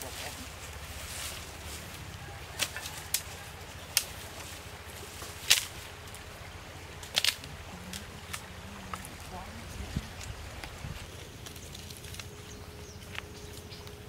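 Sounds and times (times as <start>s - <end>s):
dry sticks snapping: 2.5s - 4.5s, 5.2s - 6.2s, 6.9s - 9.2s, 10.2s - 14.0s.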